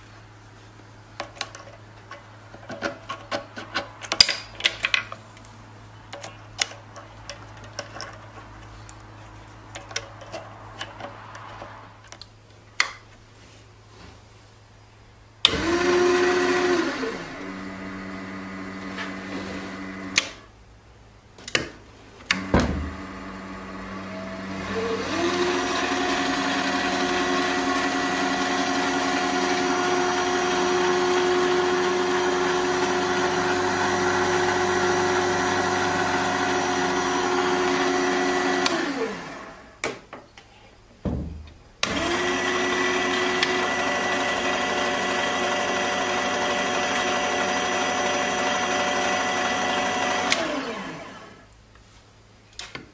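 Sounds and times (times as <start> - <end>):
lathe motor whining: 15.5 - 20.2, 22.3 - 39.6, 41.8 - 51.4.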